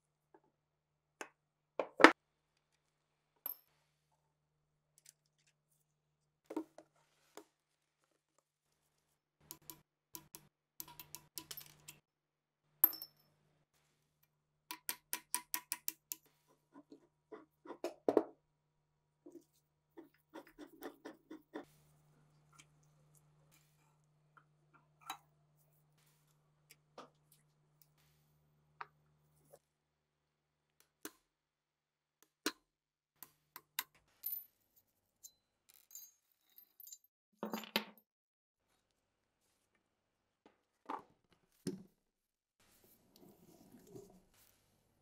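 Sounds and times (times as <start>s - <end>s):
small metal parts clinking: 10.8s - 12.0s, 35.2s - 37.1s.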